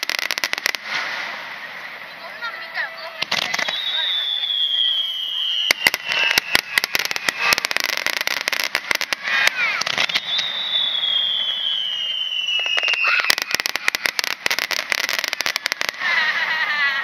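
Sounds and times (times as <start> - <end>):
fireworks bangs and crackles: 0.0 - 17.0
high descending whistles: 3.5 - 8.0, 9.2 - 14.1.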